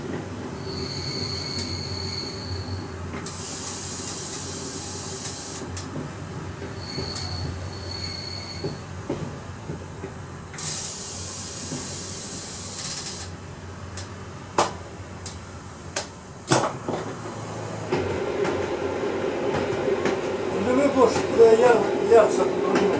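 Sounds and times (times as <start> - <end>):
railcar low drone: 0.0 - 22.9
loud hiss: 3.2 - 5.7, 10.6 - 13.3.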